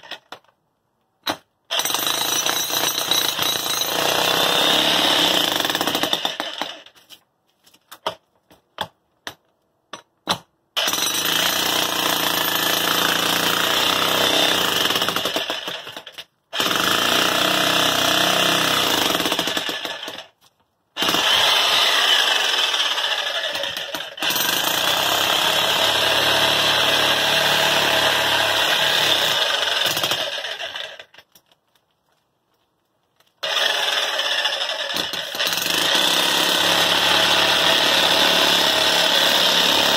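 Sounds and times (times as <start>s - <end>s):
jackhammer chiselling concrete: 1.8s - 6.8s, 10.8s - 16.0s, 16.6s - 20.2s, 21.0s - 31.0s, 33.4s - 39.9s.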